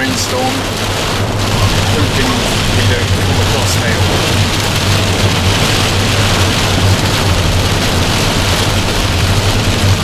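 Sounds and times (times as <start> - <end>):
engine and tyres droning: 0.0 - 10.0
rain on car windscreen: 0.0 - 10.0.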